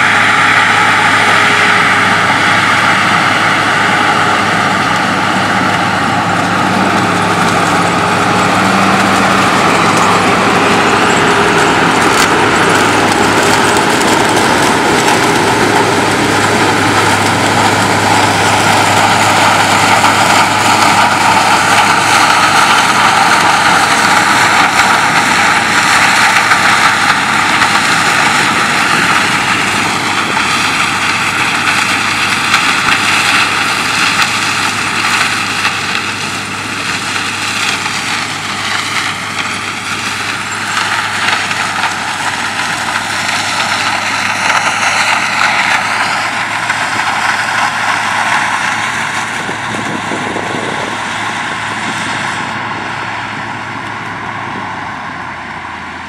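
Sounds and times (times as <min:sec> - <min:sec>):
constant mechanical whine: 0:00.0 - 0:56.0
harvester and truck engines: 0:00.0 - 0:56.0.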